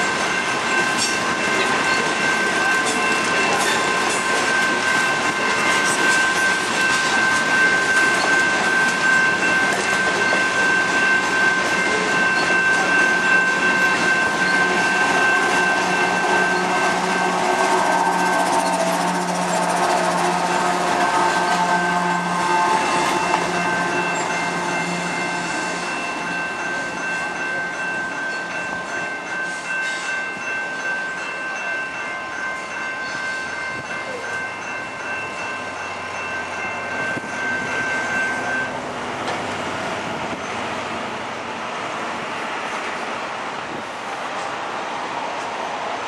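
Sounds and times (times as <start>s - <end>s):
freight train rumbling past: 0.0s - 46.0s
steady high squeal: 13.9s - 26.2s.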